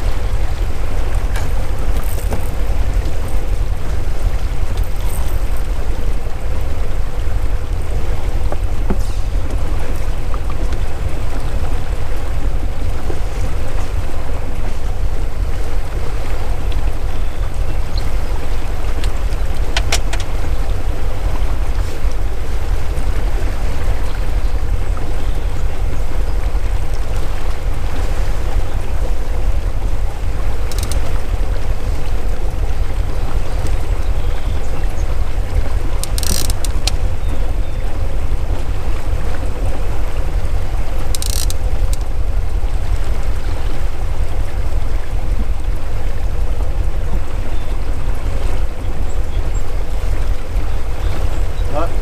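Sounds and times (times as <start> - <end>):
motorboat engine rumble: 0.0 - 52.0
brief clicks: 30.7 - 31.1.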